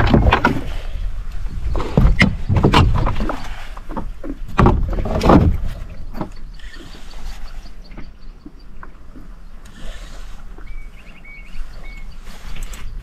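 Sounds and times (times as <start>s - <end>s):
knocks and bumps on boat: 0.0s - 0.8s, 1.7s - 6.4s.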